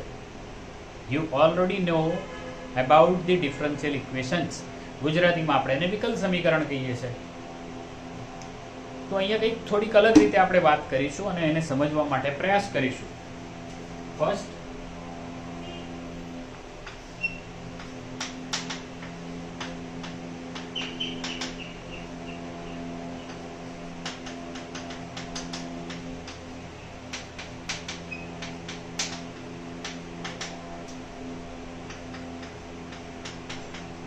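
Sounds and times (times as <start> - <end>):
steady low hum: 0.0 - 34.0
chalk squeaks: 17.2 - 17.5.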